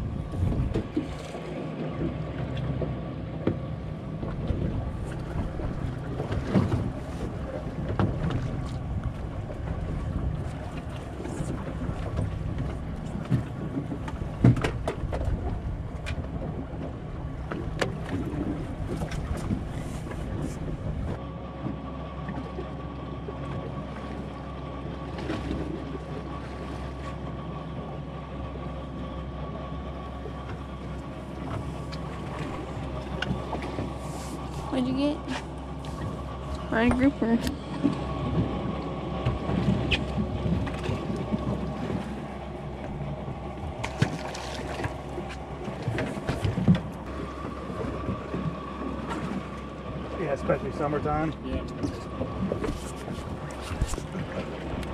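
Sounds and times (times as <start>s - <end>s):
wind on microphone: 0.0s - 1.2s
boat engine running: 0.0s - 54.9s.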